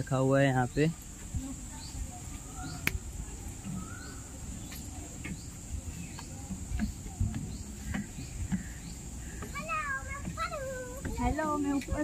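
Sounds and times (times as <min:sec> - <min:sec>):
faint chirps: 0:00.5 - 0:11.0
footsteps climbing stairs: 0:03.4 - 0:12.0.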